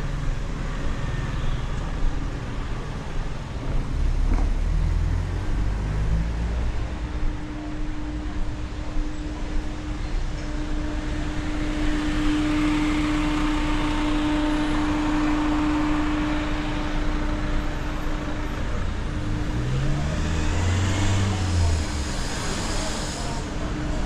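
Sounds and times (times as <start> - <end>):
steady traffic hum: 0.0 - 24.0
low engine note rising: 10.7 - 24.0.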